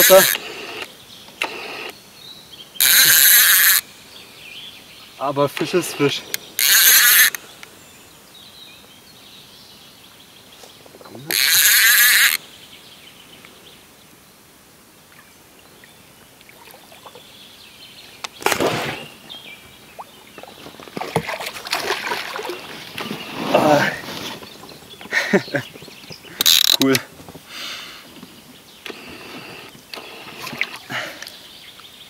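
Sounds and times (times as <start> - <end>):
fishing reel drag buzzing: 0.0 - 2.0, 2.8 - 3.9, 5.8 - 7.4, 11.3 - 12.4, 26.4 - 26.9
fish splashing at surface: 20.4 - 23.1.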